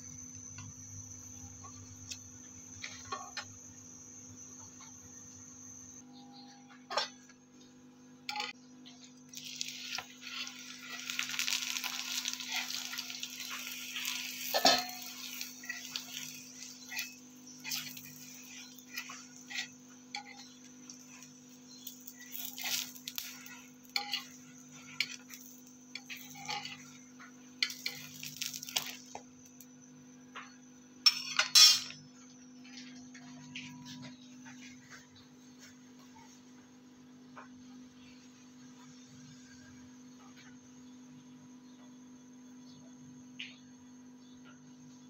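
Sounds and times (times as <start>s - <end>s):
spatula scraping and tapping griddle: 2.8s - 3.5s, 8.3s - 29.2s
oil sizzling on a griddle: 8.3s - 29.7s.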